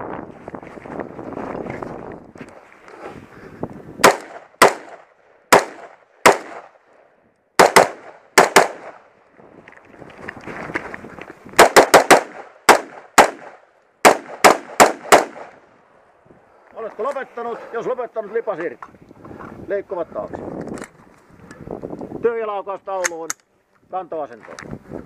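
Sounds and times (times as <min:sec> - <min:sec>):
rifle shots: 0:04.0 - 0:06.8, 0:07.6 - 0:09.1, 0:11.6 - 0:15.6.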